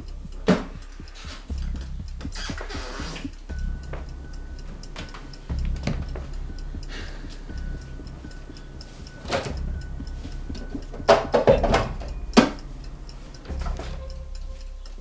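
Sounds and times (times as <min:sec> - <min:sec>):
clock-like ticking: 0:00.0 - 0:15.0
kitchenware knocking and clattering: 0:11.1 - 0:12.5.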